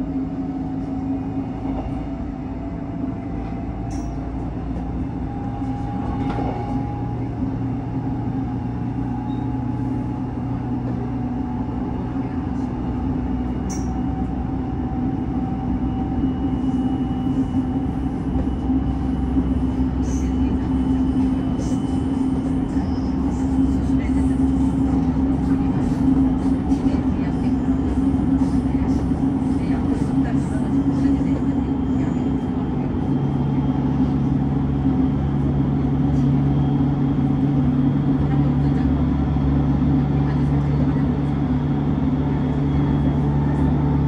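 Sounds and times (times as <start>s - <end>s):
electric train running: 12.9s - 44.0s.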